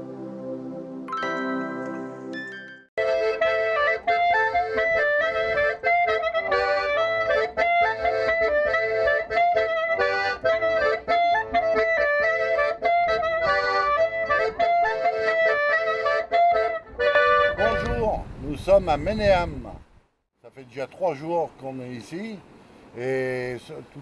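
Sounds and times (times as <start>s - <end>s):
accordion dance tune: 1.1s - 18.1s.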